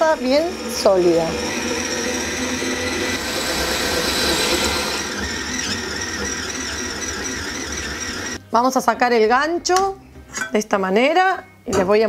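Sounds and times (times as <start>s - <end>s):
stand mixer kneading dough: 0.0s - 8.4s.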